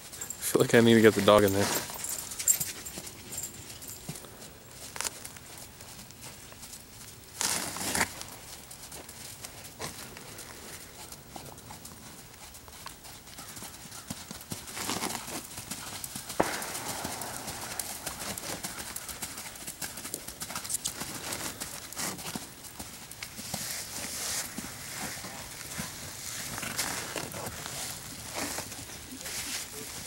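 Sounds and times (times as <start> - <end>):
horse hooves trotting on dirt: 0.0 - 30.0
sharp knock: 16.4 - 19.0.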